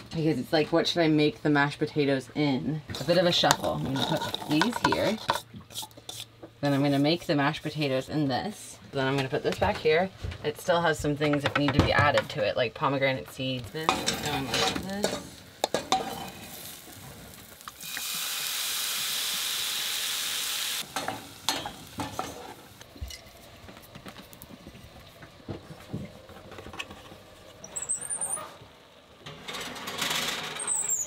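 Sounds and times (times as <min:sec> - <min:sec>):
wooden spoon scraping a pot: 0:02.9 - 0:07.2
steady hiss: 0:13.7 - 0:25.1.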